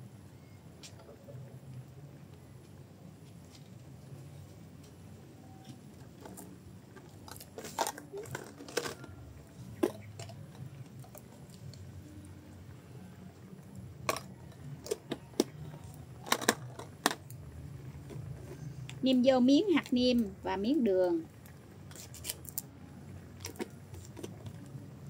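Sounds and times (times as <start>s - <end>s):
plastic containers handled: 6.0s - 11.7s, 14.0s - 17.3s.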